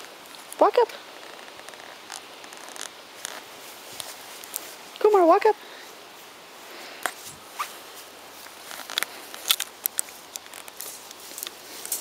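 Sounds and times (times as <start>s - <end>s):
dog moving clicks and rustles: 8.4s - 12.0s.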